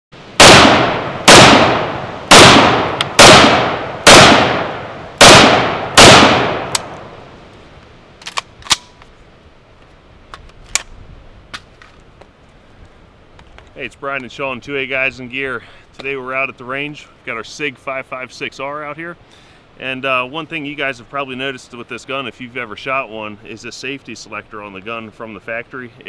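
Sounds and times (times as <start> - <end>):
rifle shots echoing: 0.4 - 7.1.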